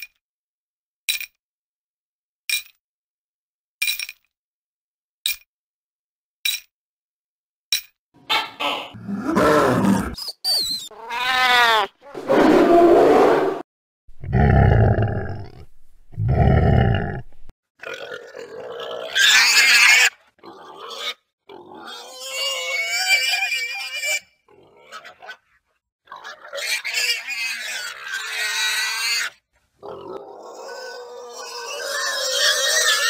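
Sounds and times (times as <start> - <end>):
wild boar grunting and squealing: 8.3 - 10.2, 14.2 - 33.0.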